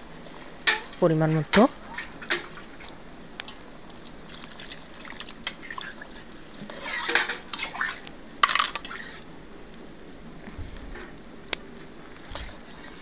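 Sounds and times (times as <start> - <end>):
curry sloshing in wok: 4.2 - 9.2
metal spatula scraping wok: 5.5 - 9.3, 12.2 - 13.0.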